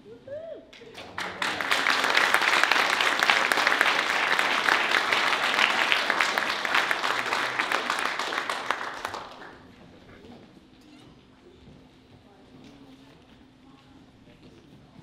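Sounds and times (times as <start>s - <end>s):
audience applauding: 0.9s - 9.7s.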